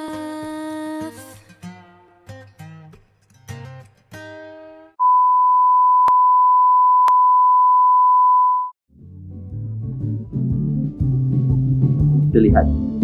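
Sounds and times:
sung pop song: 0.0 - 1.8
guitar music: 1.3 - 4.9
sine wave test tone: 5.0 - 8.8.

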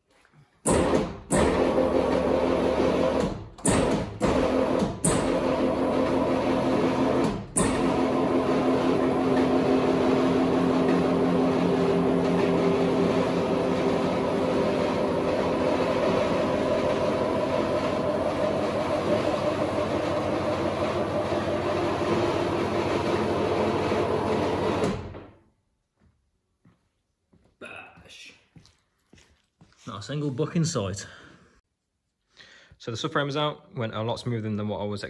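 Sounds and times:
hydraulic pump motor drone: 0.7 - 25.3.

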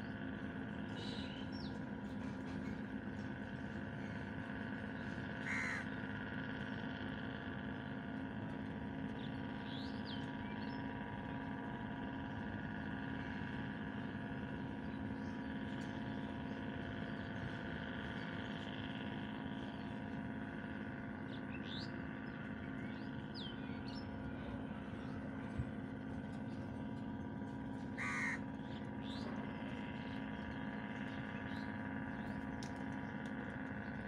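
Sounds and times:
steady hum with held tones: 0.0 - 34.0
crow cawing: 5.3 - 6.4, 27.9 - 30.4.

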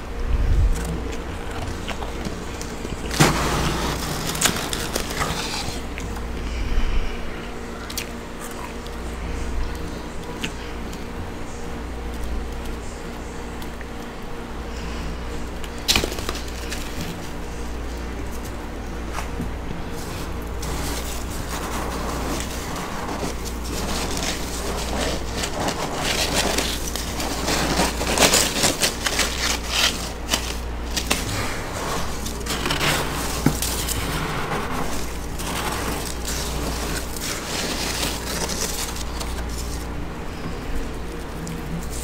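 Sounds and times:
metal utensil scraping frost: 1.4 - 6.0, 19.8 - 40.0.

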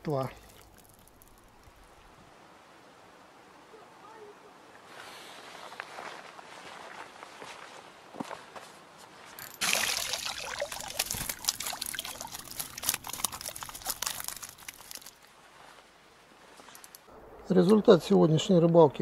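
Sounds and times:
water pouring and dripping: 0.0 - 2.2, 9.4 - 15.3.

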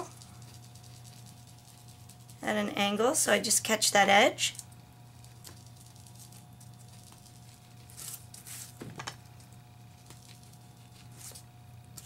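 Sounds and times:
faint steady hum: 0.0 - 12.0
foam tool swishing on paper: 7.2 - 8.8, 10.2 - 11.5.

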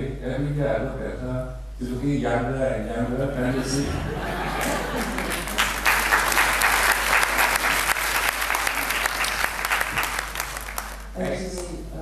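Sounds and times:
audience applauding: 4.5 - 11.2.

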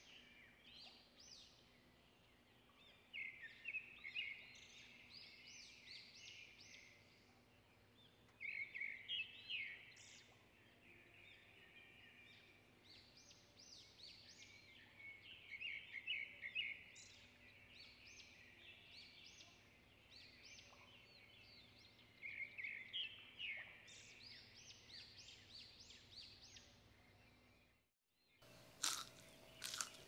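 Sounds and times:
small birds chirping: 28.4 - 30.0.

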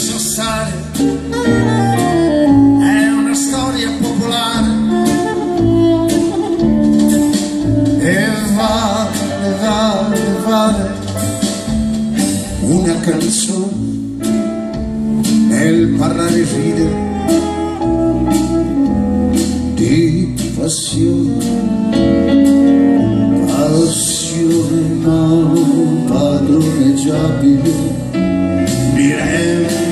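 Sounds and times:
man singing: 0.0 - 1.5, 2.4 - 5.4, 7.8 - 14.3, 15.4 - 17.6, 19.7 - 21.8, 23.3 - 29.9
live band music: 0.0 - 29.9
saxophone: 0.4 - 11.2, 16.6 - 19.8, 21.1 - 24.8.

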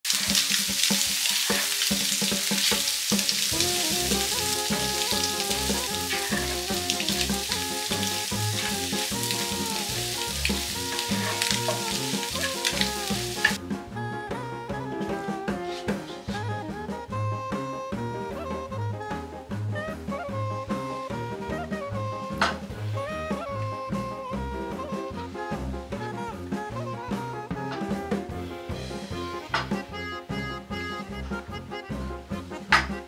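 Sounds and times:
food sizzling in a frying pan: 0.0 - 13.6
wooden spatula scraping pan: 3.4 - 13.6.

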